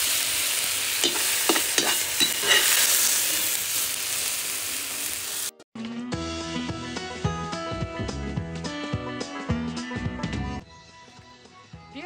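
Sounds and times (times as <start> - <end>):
vegetables sizzling in oil: 0.0 - 5.6.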